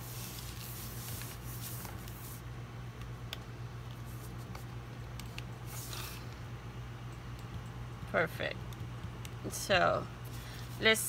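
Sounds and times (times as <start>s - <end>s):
soft plastic rustling: 0.0s - 2.4s
steady low hum: 0.0s - 11.0s.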